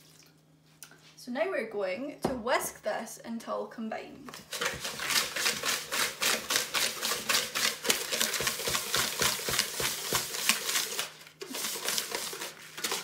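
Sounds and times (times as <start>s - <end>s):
whisk scraping in plastic bowl: 4.4s - 13.0s.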